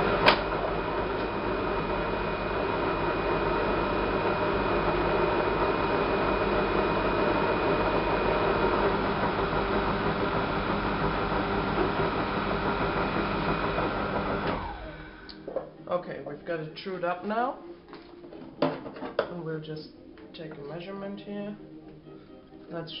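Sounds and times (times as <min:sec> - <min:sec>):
metal lathe running: 0:00.0 - 0:15.3.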